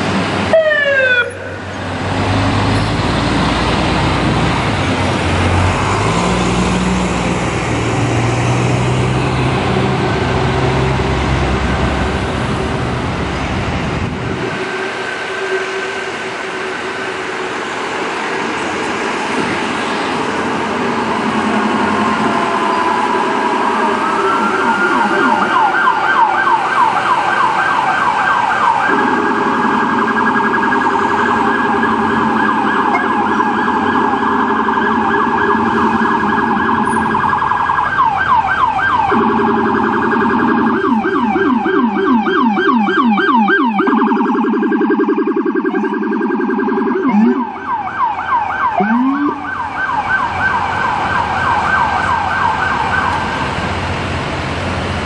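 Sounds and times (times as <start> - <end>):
emergency sirens yelping: 0.0 - 55.0
lower-pitched siren: 0.4 - 13.2, 14.2 - 53.7
short rising siren chirps: 20.1 - 27.1, 28.6 - 53.2.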